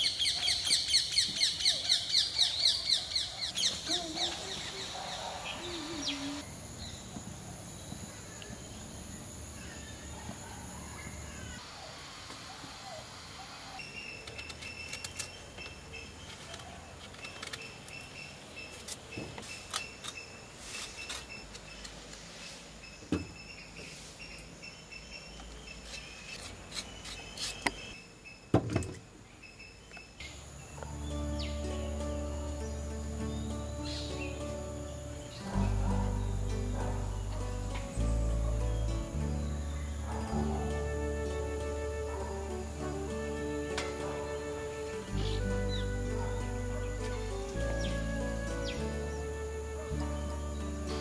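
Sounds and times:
bird calls and chirps: 0.0s - 11.6s, 12.8s - 28.5s, 29.2s - 51.0s
faint insect trill: 3.6s - 11.8s
high-pitched insect drone: 3.8s - 7.1s, 30.8s - 51.0s.

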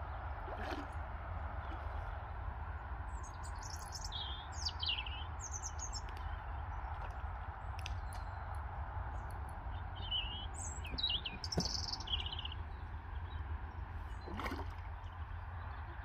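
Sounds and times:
steady low rumble: 0.0s - 16.0s
small bird chirping: 3.2s - 6.1s, 10.0s - 12.8s.

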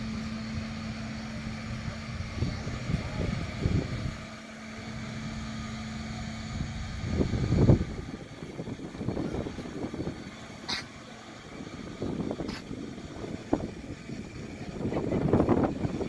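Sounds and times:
bridge machinery droning: 0.0s - 16.0s
wind buffeting microphone: 1.6s - 4.3s, 6.3s - 16.0s.

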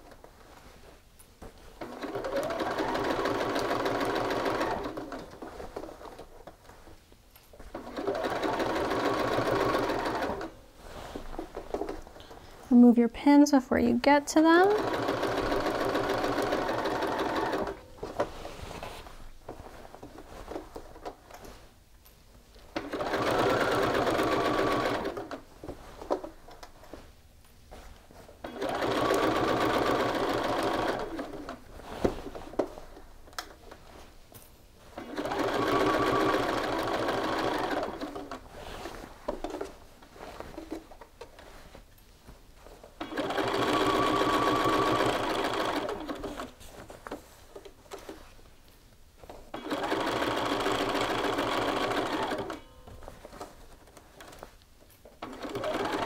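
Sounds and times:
sewing machine stitching: 1.8s - 6.3s, 7.7s - 10.5s, 14.5s - 18.1s, 22.7s - 26.3s, 28.4s - 31.6s, 34.9s - 39.7s, 43.0s - 47.2s, 49.5s - 54.4s, 55.2s - 56.0s.

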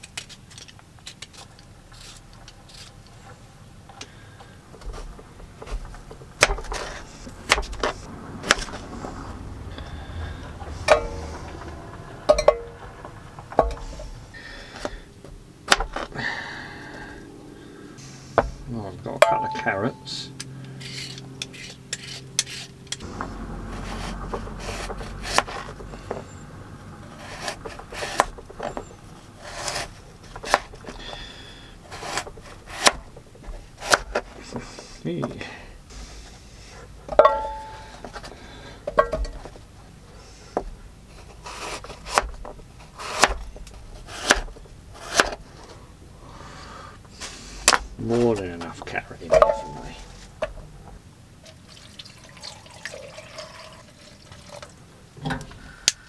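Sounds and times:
peeler scraping potatoes: 0.0s - 3.2s, 6.4s - 8.7s, 20.7s - 26.4s, 27.0s - 35.3s, 40.2s - 45.6s.

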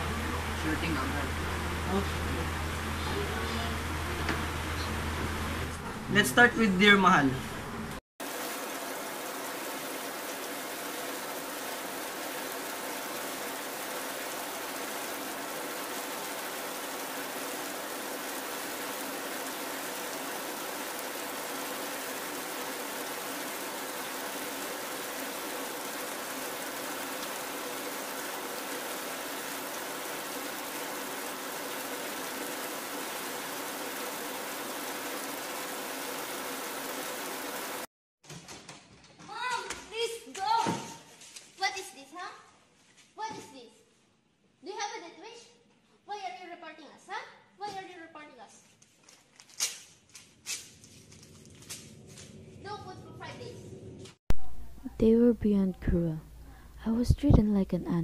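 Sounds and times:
steady hissing noise: 8.3s - 37.9s.

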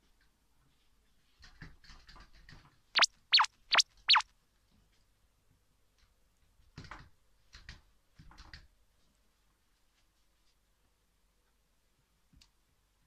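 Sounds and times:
high-pitched squeaks: 3.0s - 4.2s.

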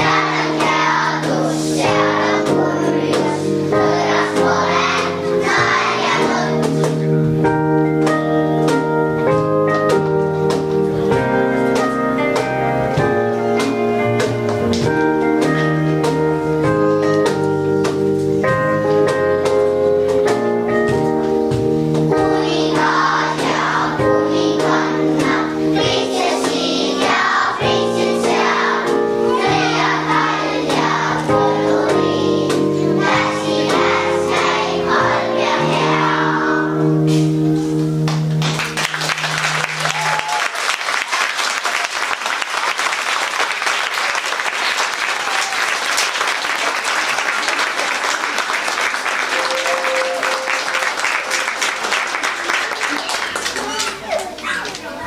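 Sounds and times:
children singing: 0.0s - 7.0s, 22.1s - 37.0s
instrumental accompaniment: 0.0s - 42.4s, 43.2s - 54.1s
audience applauding: 38.1s - 55.0s.

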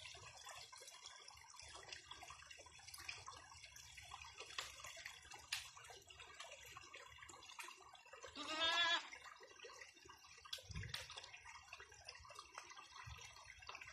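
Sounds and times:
goat bleating: 8.4s - 9.1s.

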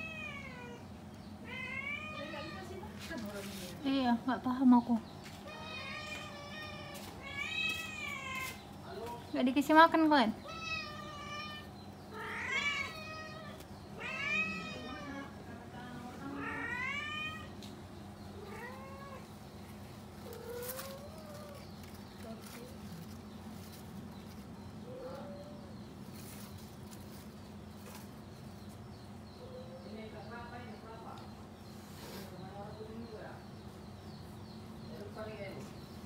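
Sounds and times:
cat meowing: 0.0s - 0.8s, 1.4s - 2.8s, 5.4s - 8.6s, 10.4s - 15.3s, 16.3s - 17.6s, 18.4s - 19.3s.

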